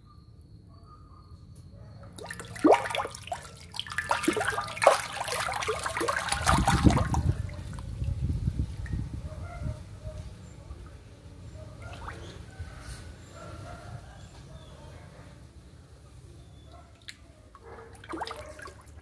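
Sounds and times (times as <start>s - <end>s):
fish thrashing and splashing: 2.2s - 7.8s, 18.0s - 19.0s.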